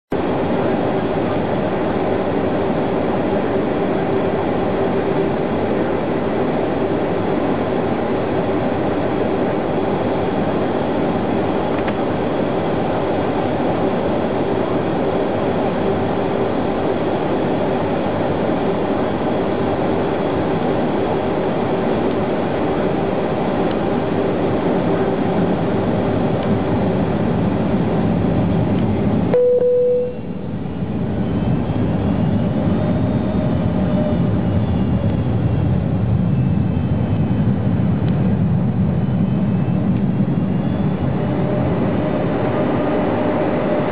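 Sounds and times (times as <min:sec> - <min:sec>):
airliner cabin rush and hum: 0:00.1 - 0:43.9.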